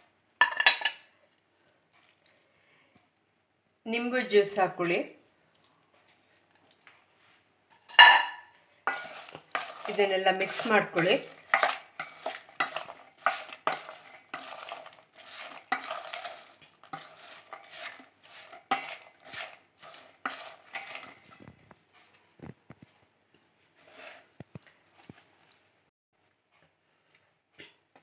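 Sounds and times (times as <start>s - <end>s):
spatula scraping metal bowl: 8.9s - 21.5s, 23.8s - 24.3s.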